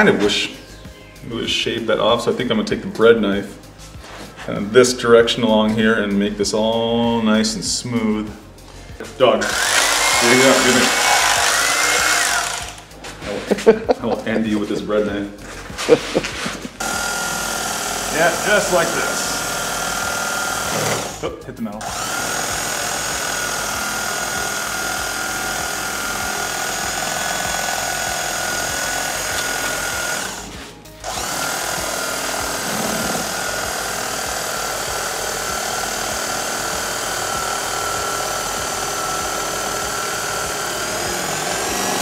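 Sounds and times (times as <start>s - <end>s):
electric knife whining: 9.4s - 13.0s, 15.8s - 42.0s.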